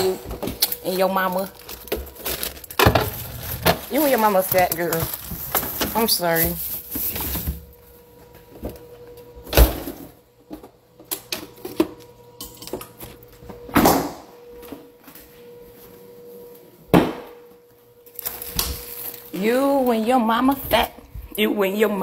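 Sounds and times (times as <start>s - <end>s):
items handled in refrigerator: 0.0s - 13.8s, 18.0s - 21.4s.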